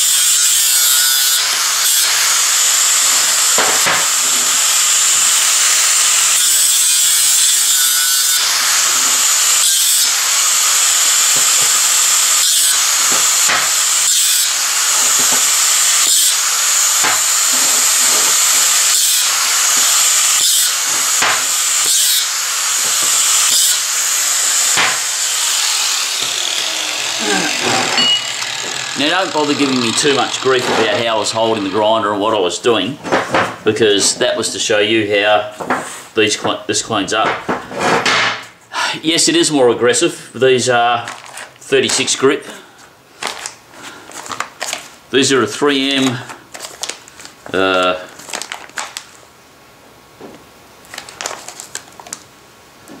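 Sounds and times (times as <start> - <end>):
angle grinder grinding steel: 0.0 - 32.7.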